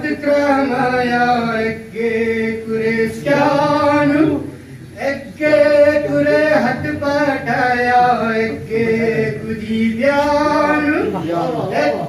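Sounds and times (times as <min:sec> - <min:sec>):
breath: 0:04.5 - 0:04.9
man singing over a pa: 0:05.0 - 0:11.2.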